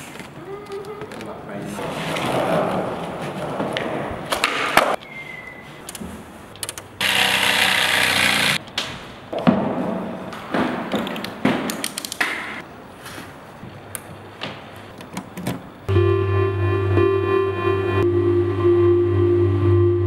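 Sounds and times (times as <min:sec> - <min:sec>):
jigsaw cutting board: 0:07.0 - 0:08.6.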